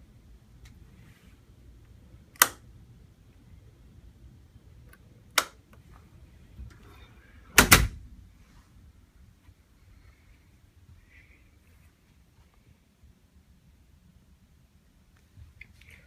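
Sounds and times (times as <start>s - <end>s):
sharp click: 2.4s - 2.6s
door shutting with a knock: 7.6s - 8.0s.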